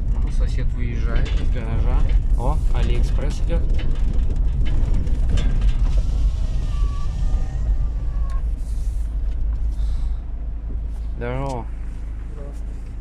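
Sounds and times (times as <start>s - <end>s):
cab rattling and creaking: 0.0s - 13.0s
vehicle engine rumbling: 0.0s - 13.0s
faint thin squeal: 6.0s - 9.0s.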